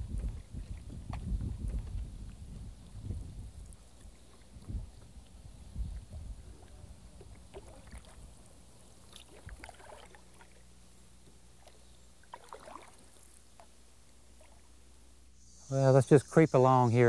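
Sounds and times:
wind rumble on microphone: 0.0s - 8.4s
paddle splashing in water: 7.2s - 8.2s, 9.1s - 10.6s, 11.6s - 13.7s.

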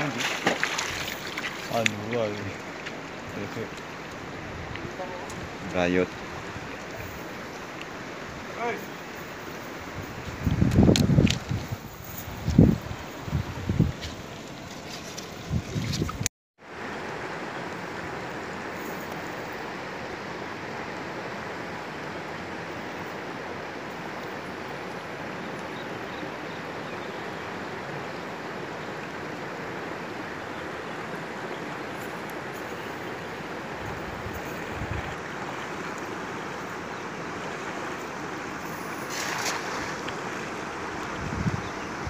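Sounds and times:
water splash: 0.0s - 3.1s, 38.6s - 40.7s
river flowing over rocks: 16.7s - 42.0s.

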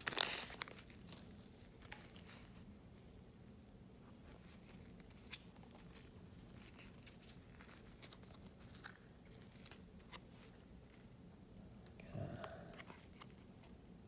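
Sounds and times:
cards shuffling: 0.0s - 2.6s.

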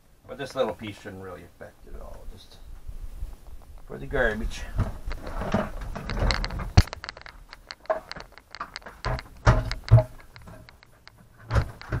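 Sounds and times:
plastic clicks and knocks: 4.7s - 12.0s.

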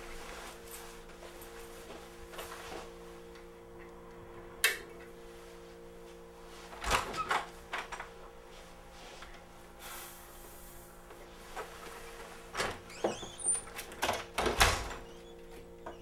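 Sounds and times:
low hum: 0.0s - 6.7s.

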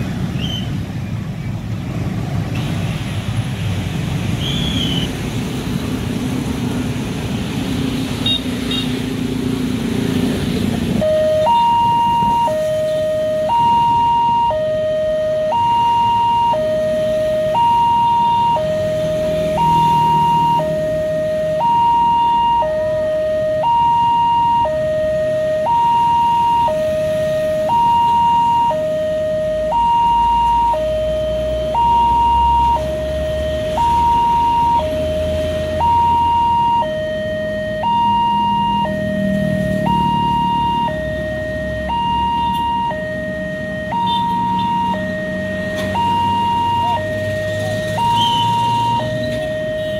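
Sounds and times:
two-tone level crossing alarm: 11.0s - 49.9s.

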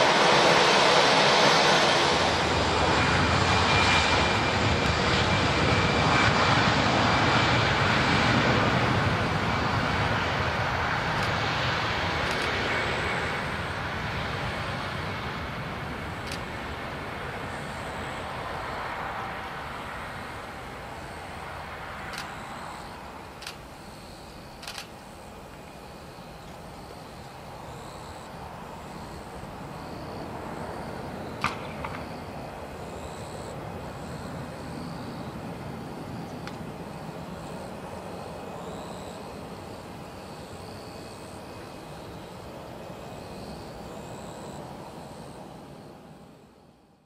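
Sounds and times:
distant jet engine rumble: 0.0s - 47.0s
sharp clicks: 23.4s - 23.6s, 24.6s - 25.0s.

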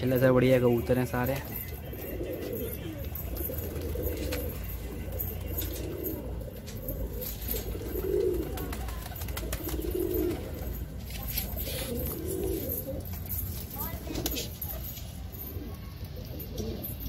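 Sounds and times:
pigeons cooing: 0.5s - 17.0s.

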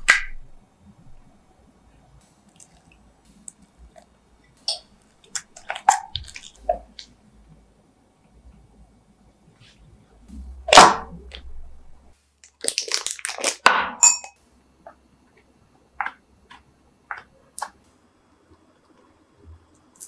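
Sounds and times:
plastic bag rustling: 12.4s - 13.6s
glass clink: 13.9s - 14.4s.

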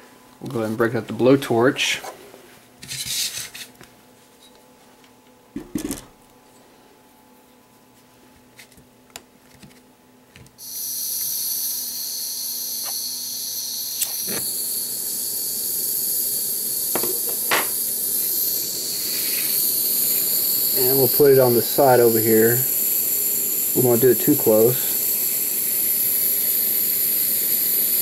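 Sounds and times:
torch gas hissing: 10.6s - 28.0s.

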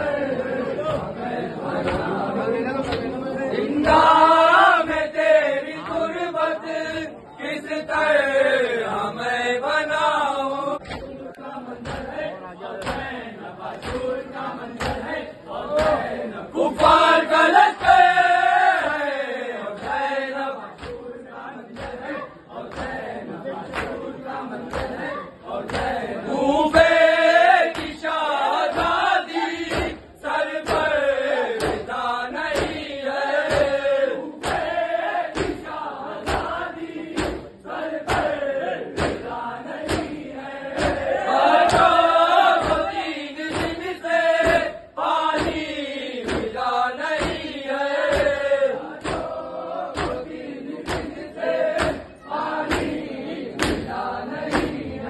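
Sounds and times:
crowd of men chanting: 0.0s - 55.0s
hand slaps on chest: 43.5s - 43.8s.

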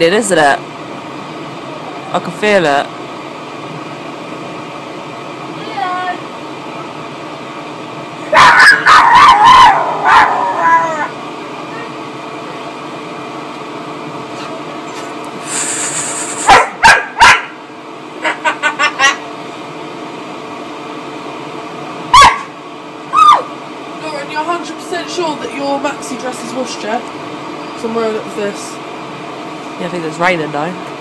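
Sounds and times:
puppy barking and yipping: 8.3s - 10.9s, 16.5s - 17.6s, 22.1s - 22.5s.

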